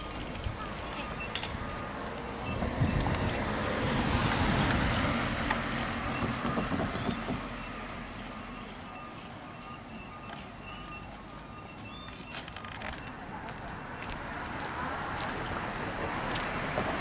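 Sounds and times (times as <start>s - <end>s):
vehicle driving past: 1.8s - 9.1s.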